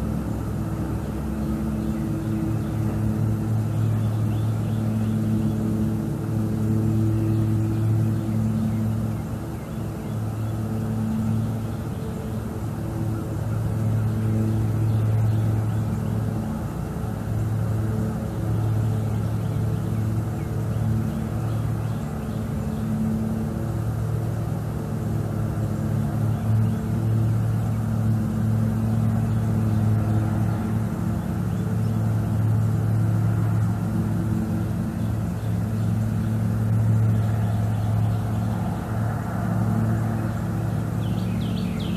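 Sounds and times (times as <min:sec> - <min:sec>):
distant motor hum: 0:00.0 - 0:41.9.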